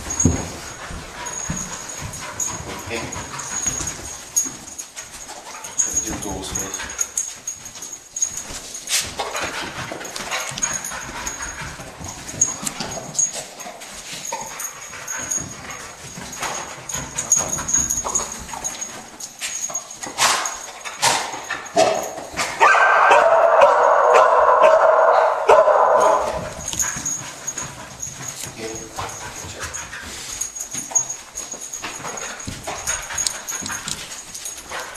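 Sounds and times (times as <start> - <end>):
dog barking: 22.6 - 26.3.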